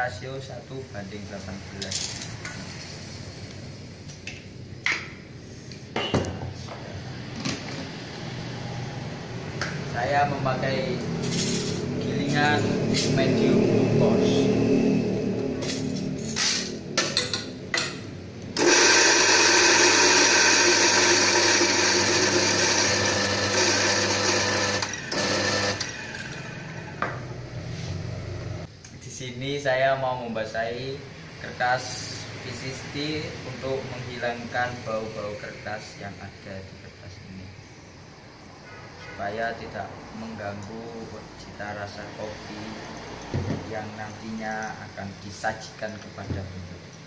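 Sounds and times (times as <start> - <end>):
coffee grinder running: 18.6 - 26.8.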